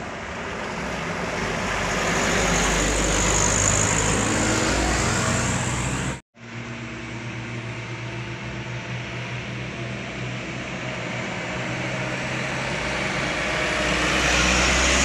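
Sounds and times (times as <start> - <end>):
truck passing at speed: 0.0 - 6.2, 11.6 - 15.0.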